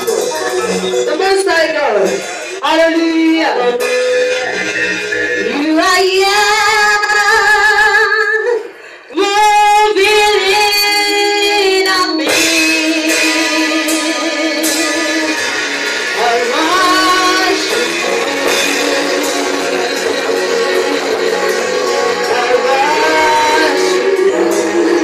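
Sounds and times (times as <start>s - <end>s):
instrumental backing: 0.0s - 25.0s
woman singing gospel song: 5.4s - 25.0s.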